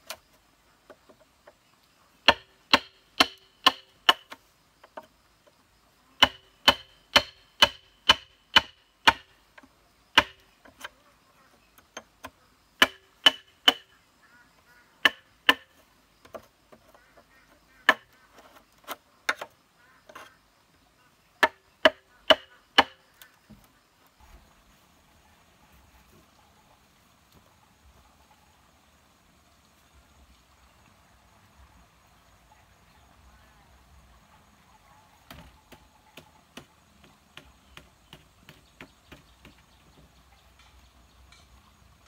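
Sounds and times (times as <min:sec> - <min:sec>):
wooden club striking steel chisel: 0:02.3 - 0:04.4, 0:06.2 - 0:09.3, 0:10.2 - 0:10.8, 0:12.0 - 0:13.9, 0:15.0 - 0:16.5, 0:21.4 - 0:23.0.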